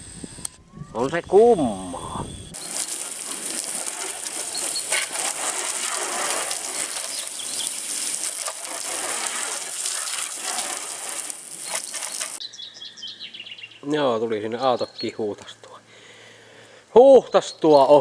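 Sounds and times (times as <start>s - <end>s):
water jet spraying a car: 2.6s - 12.4s.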